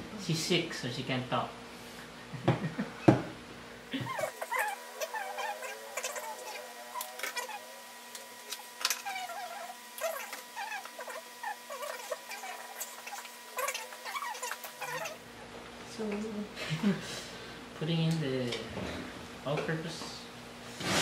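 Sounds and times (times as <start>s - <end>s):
sped-up squeaky voices: 3.9s - 7.8s, 8.5s - 15.2s.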